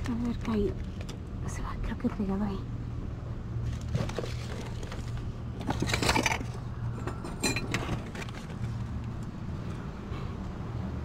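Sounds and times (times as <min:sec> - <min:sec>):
hard objects clinking and knocking: 0:04.0 - 0:08.7.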